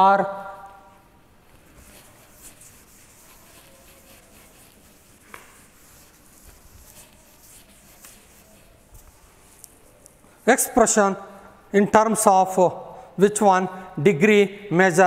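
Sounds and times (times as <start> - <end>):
duster swishing on blackboard: 1.5 - 10.0.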